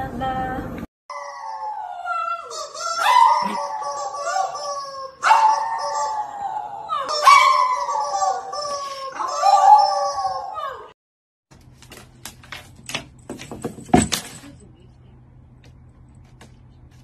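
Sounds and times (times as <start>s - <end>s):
small dog howling: 1.1s - 11.0s
rubber chicken toy squawking: 2.3s - 6.2s, 7.0s - 10.5s.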